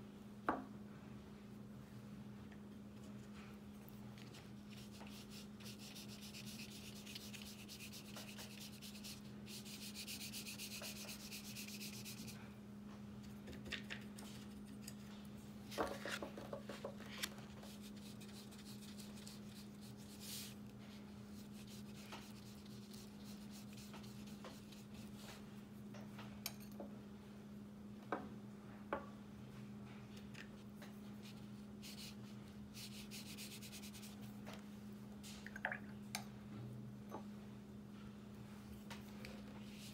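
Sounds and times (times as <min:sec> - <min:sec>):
steady low hum: 0:00.0 - 0:39.9
brush scrubbing on paper: 0:04.7 - 0:12.4, 0:17.6 - 0:20.6, 0:21.3 - 0:25.4, 0:31.2 - 0:34.3.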